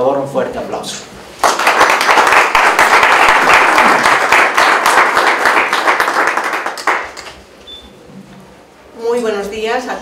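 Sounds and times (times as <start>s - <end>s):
audience applauding: 1.4s - 7.4s.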